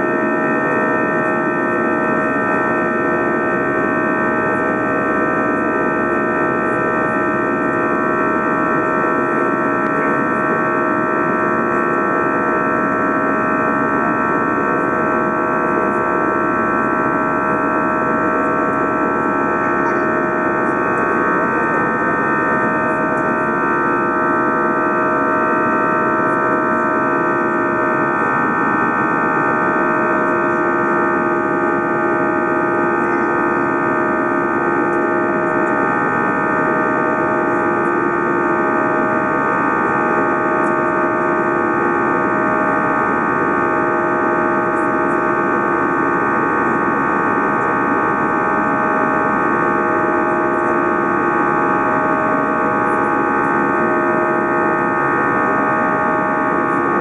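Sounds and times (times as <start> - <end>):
jet engine drone in cabin: 0.0 - 57.0.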